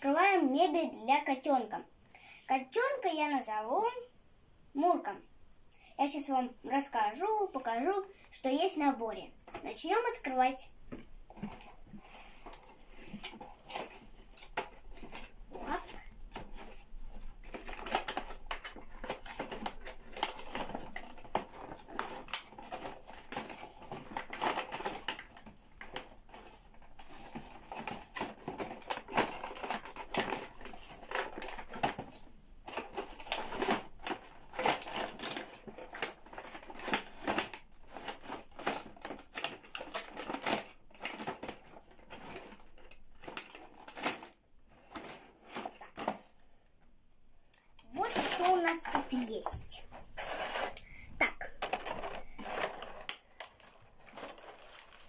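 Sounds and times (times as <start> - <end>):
plastic packaging crinkling: 11.3 - 46.4, 47.8 - 55.0.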